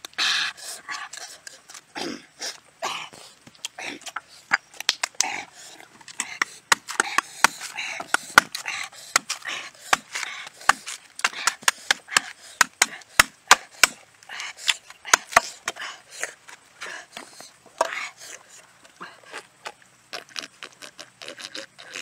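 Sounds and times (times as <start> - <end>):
machete chopping coconut husk: 6.1 - 14.0, 14.6 - 15.8.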